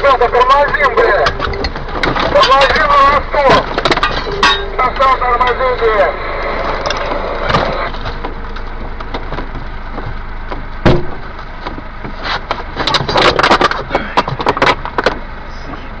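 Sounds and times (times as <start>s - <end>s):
knocks and rattles in truck cab: 0.0s - 4.6s, 7.5s - 15.3s
steady low rumble: 0.0s - 16.0s.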